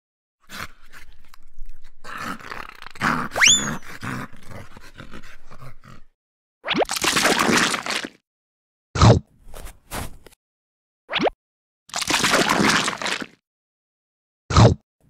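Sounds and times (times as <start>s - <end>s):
toy dog growling and barking: 2.0s - 6.2s
rising whistle-like swoop: 3.4s - 3.8s.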